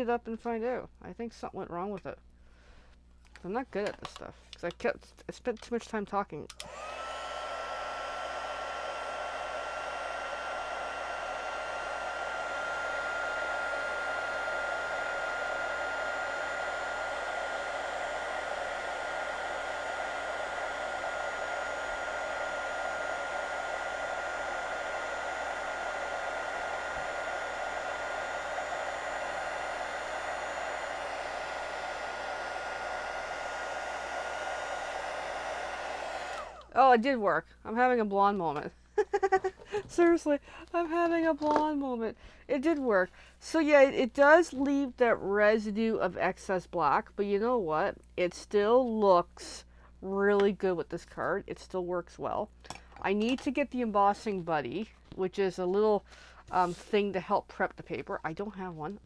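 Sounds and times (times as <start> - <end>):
fan motor whine: 6.6 - 36.8
heat gun blowing hot air: 6.6 - 36.8.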